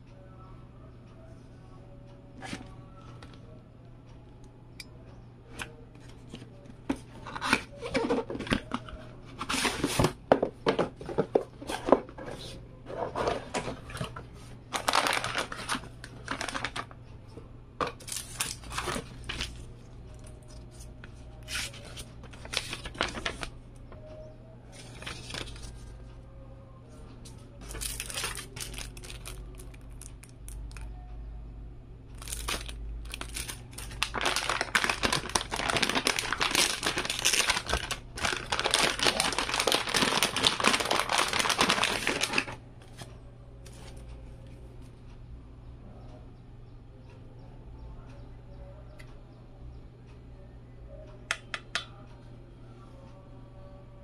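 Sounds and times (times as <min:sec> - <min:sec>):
cardboard packaging moved: 0:07.2 - 0:10.2, 0:14.8 - 0:16.9, 0:21.4 - 0:23.5, 0:32.2 - 0:43.1
metallic bag crinkling: 0:14.8 - 0:16.9, 0:21.4 - 0:23.5, 0:27.6 - 0:30.8, 0:32.2 - 0:42.6.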